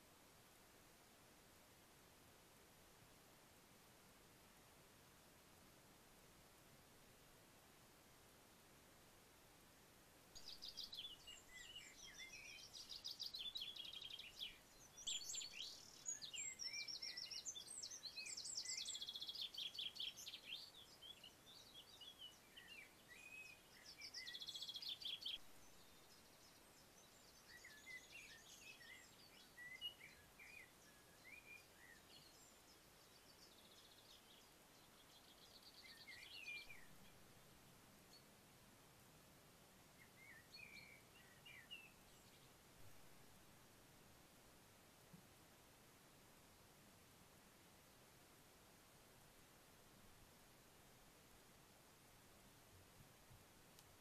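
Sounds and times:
faint outdoor hiss: 0.0 - 54.0
songbirds singing trills: 10.4 - 38.4, 39.9 - 43.5.

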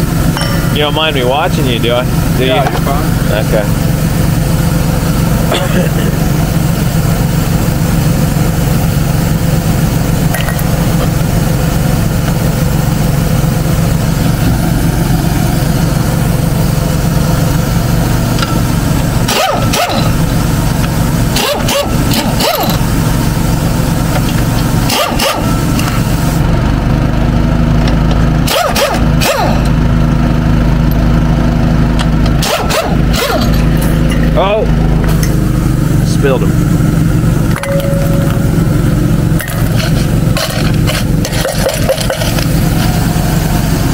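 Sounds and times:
engine running: 0.0 - 43.9
impact wrench spinning lug nuts: 2.1 - 26.4, 27.9 - 29.8, 32.0 - 35.7, 37.5 - 43.9.

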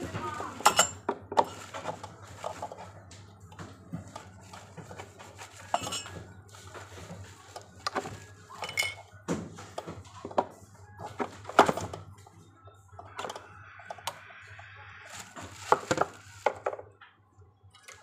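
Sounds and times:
rustling handling noise: 0.0 - 12.3, 15.1 - 17.0.

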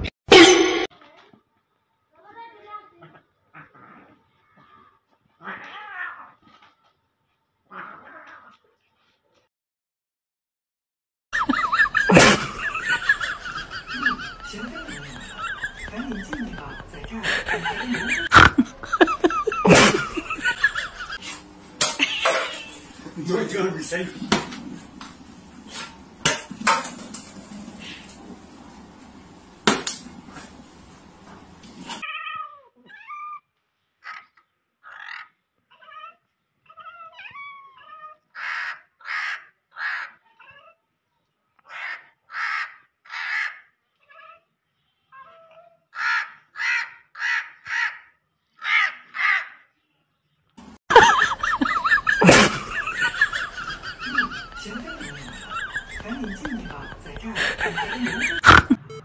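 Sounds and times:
harsh animal calls: 34.0 - 40.7, 41.6 - 44.4, 45.3 - 49.7, 51.0 - 59.0.

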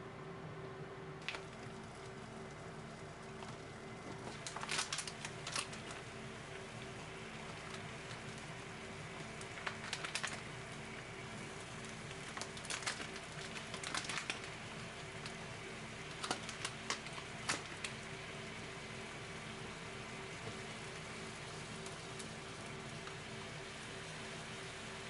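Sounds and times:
sausages sizzling in a frying pan: 1.4 - 25.0
sharp crackling pops: 3.3 - 8.6, 9.2 - 18.0.

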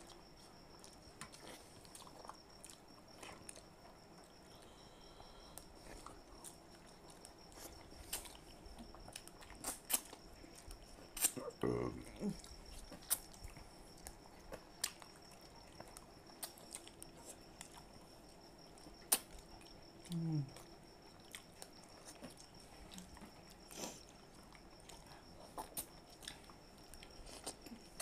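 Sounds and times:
faint high whine: 0.0 - 28.0
wet lip smacks eating mango: 19.0 - 19.5
person humming mm: 20.1 - 20.6.

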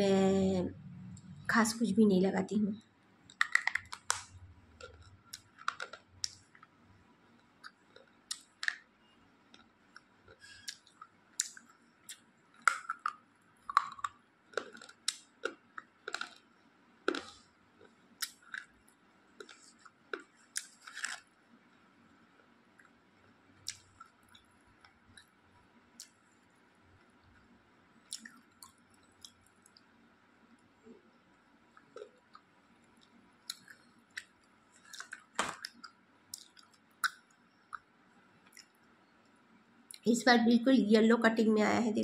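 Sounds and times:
pencil crunched between teeth: 19.4 - 21.3.

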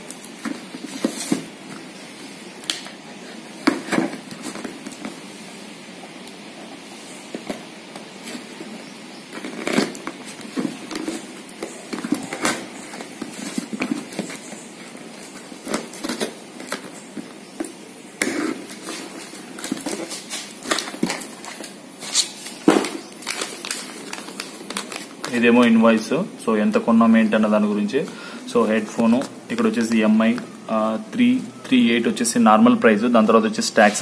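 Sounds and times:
cardboard flaps tearing: 9.3 - 14.5, 18.2 - 25.3.

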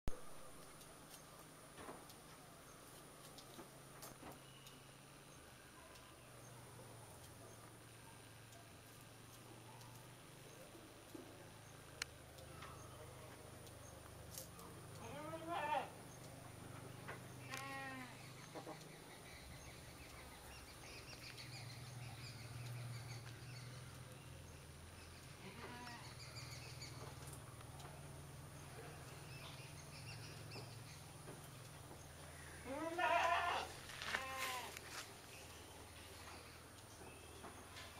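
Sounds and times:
faint high chirps: 4.2 - 10.8, 35.2 - 37.9
bleat-like animal calls: 15.0 - 15.9, 17.5 - 18.2, 25.4 - 26.1, 32.6 - 34.8.

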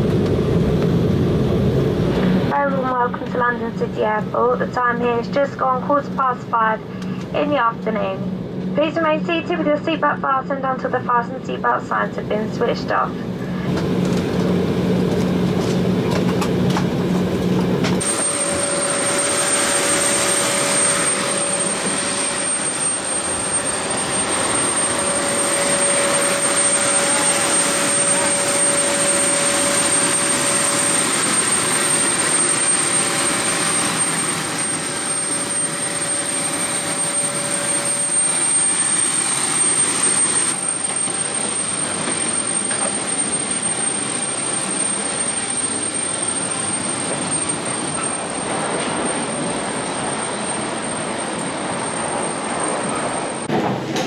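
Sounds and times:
airliner cabin hum: 0.0 - 43.2
jet engine rushing and whine: 0.0 - 54.0.

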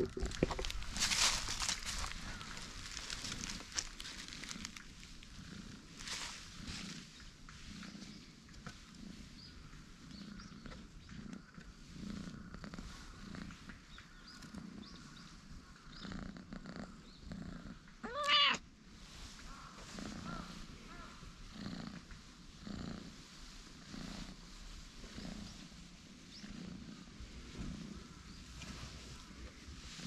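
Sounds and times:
cat purring: 0.0 - 30.0
cat meowing: 18.0 - 18.6.

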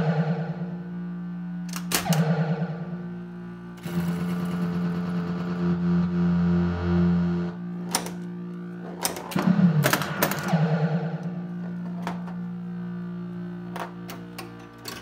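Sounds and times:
pinball machine electronic background: 0.0 - 15.0
warbling sound effect: 9.4 - 11.6.

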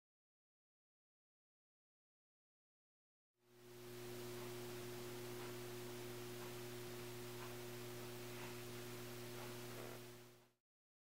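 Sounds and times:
electrical hum with hiss: 3.4 - 10.6.

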